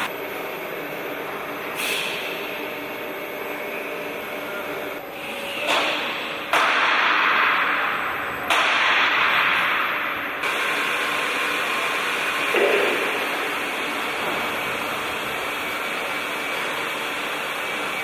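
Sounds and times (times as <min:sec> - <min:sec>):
cnc router running: 0:00.0 - 0:06.6, 0:10.2 - 0:18.0.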